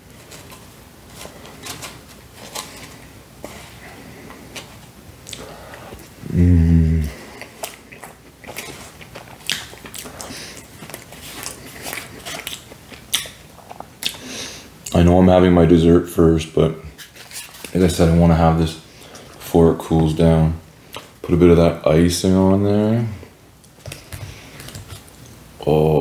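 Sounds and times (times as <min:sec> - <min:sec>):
wet chewing and mouth clicks: 0:04.6 - 0:06.1, 0:07.3 - 0:14.2.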